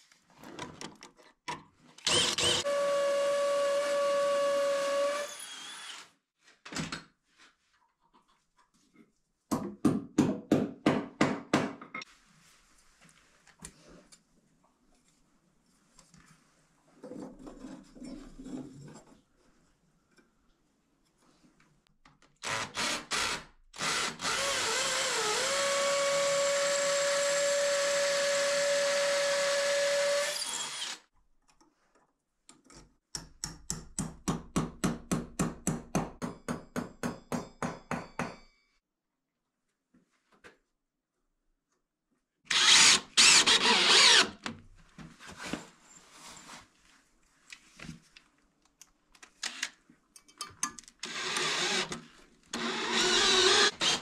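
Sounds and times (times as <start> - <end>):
power drill running: 2.0 - 6.1, 22.4 - 31.0, 42.5 - 44.4, 51.0 - 52.0, 52.6 - 54.0
power tool burst: 42.5 - 44.4.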